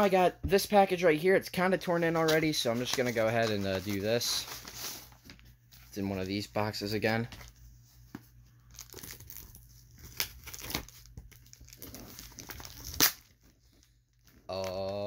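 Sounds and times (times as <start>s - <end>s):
package wrapping crinkling: 8.6s - 15.0s.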